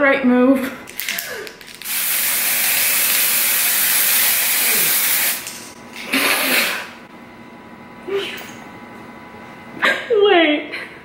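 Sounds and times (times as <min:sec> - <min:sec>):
aerosol can hissing: 0:01.8 - 0:05.5.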